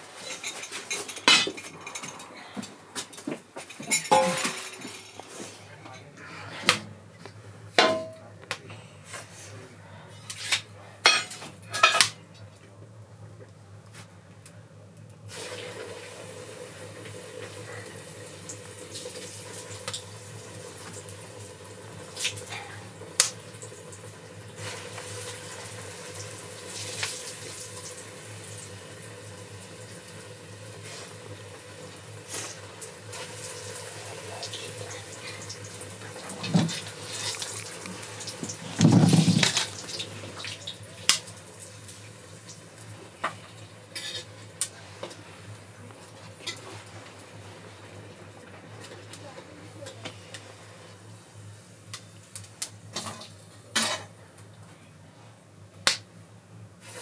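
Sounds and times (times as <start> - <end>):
oil sizzling deep-frying: 0.0 - 1.4, 15.2 - 54.2, 55.8 - 57.0
metal tongs clinking on pot: 3.9 - 5.2.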